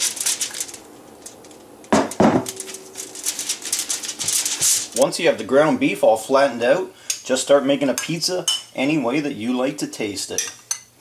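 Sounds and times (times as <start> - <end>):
foil rustling: 0.0 - 5.6.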